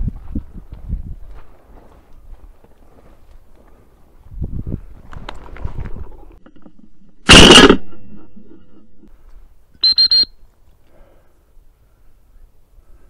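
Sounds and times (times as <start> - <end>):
shotgun shot: 7.2 - 8.0.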